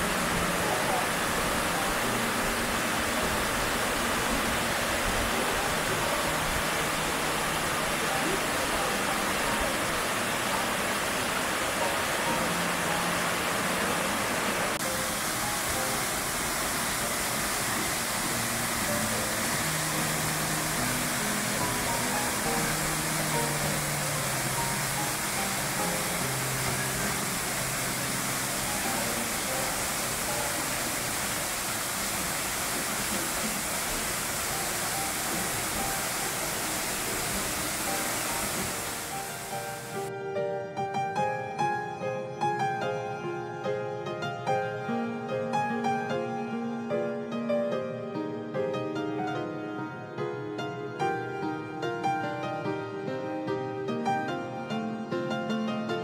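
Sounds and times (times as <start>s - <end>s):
waterfall rushing: 0.0s - 40.1s
soft background music: 0.0s - 56.0s.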